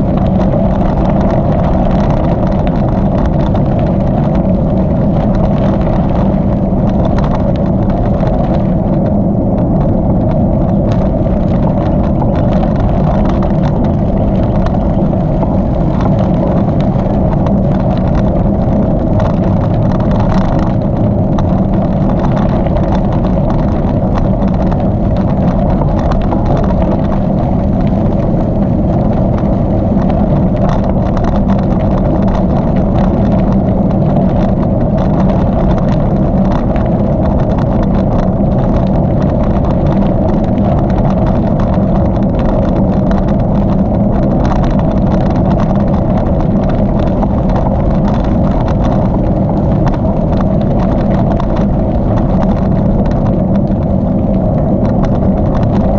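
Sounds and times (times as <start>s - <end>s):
bicycle tyres rolling: 0.0s - 55.9s
bike clicks and rattles: 0.0s - 55.9s
wind: 0.0s - 55.9s.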